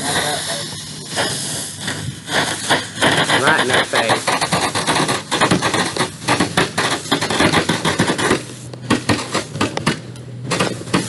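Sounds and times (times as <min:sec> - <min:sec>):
firecrackers popping: 0:00.0 - 0:11.0.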